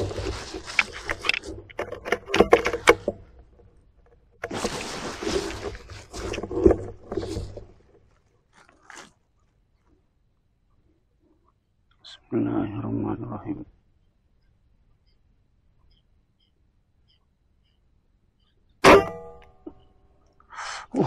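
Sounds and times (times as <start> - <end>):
rustling and handling noise: 0.0 - 11.9.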